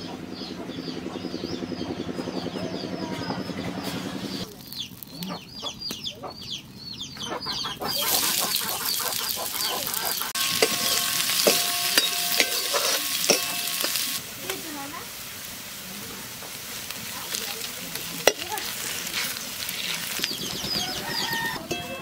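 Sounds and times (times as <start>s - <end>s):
onions sizzling in hot oil: 4.4s - 5.2s, 7.9s - 21.8s
metal ladle scraping wok: 8.1s - 14.3s, 16.5s - 20.4s
wok ringing from knocks: 10.4s - 14.1s, 21.2s - 22.0s.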